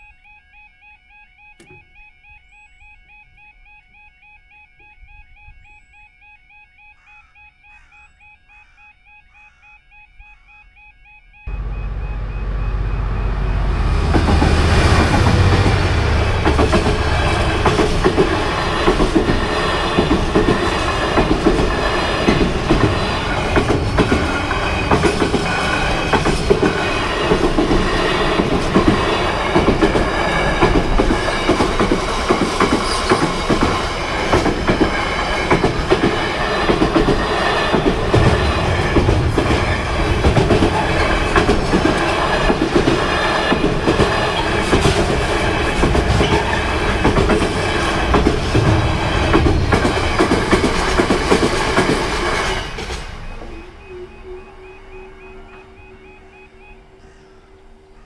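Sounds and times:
train wheels clicking over rail joints: 0:11.5 - 0:53.8
train low rumble: 0:11.5 - 0:58.0.

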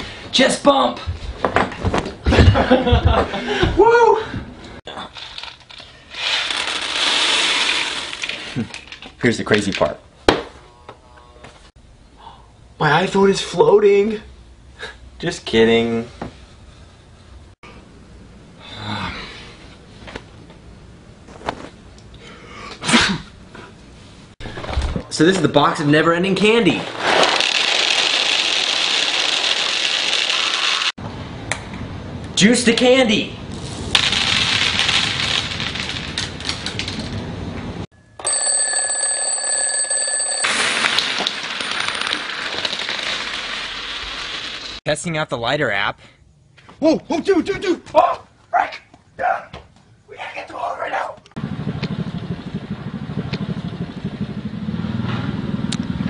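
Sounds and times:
coins scattering on wooden floor: 0:27.1 - 0:30.8, 0:34.0 - 0:37.0, 0:40.3 - 0:44.8
alarm clock ringing: 0:38.0 - 0:41.1
candies rattling onto wood: 0:40.7 - 0:44.1.

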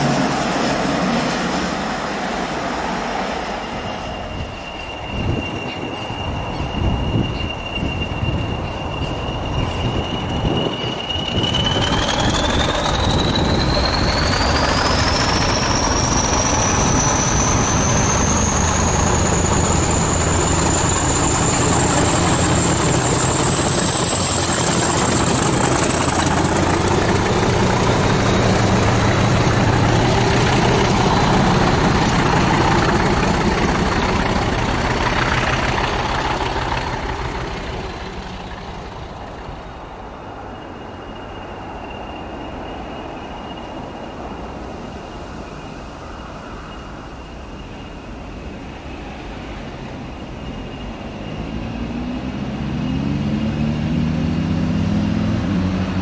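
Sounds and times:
diesel locomotive engine throbbing: 0:00.0 - 0:56.0
turbocharger whistle rising: 0:03.6 - 0:39.0.

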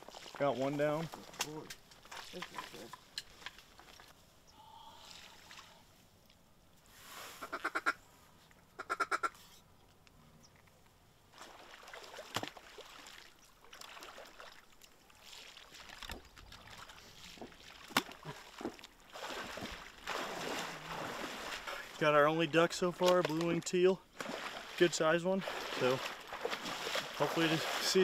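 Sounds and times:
duck quacking: 0:07.4 - 0:08.0, 0:08.8 - 0:09.4.

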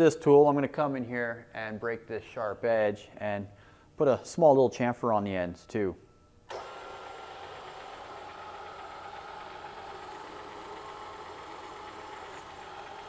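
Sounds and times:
milling machine spindle running: 0:06.5 - 0:13.0.

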